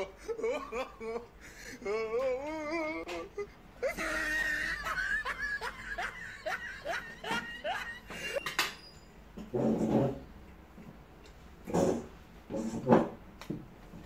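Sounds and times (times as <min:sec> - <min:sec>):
person laughing in squeals: 0:00.0 - 0:08.5.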